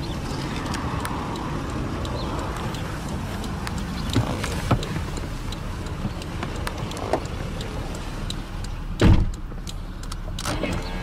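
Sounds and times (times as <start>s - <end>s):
car door thumping shut: 9.0s - 9.4s.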